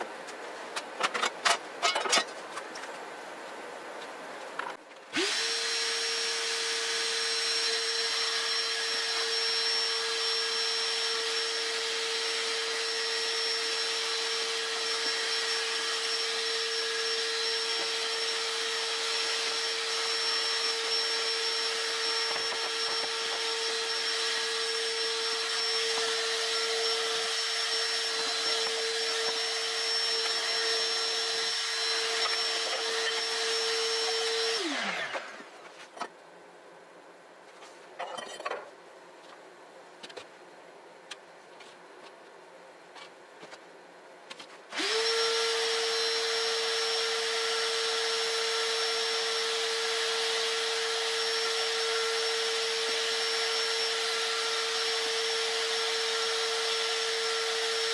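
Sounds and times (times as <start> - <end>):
shop vacuum motor whining: 5.1 - 35.5, 44.7 - 57.9.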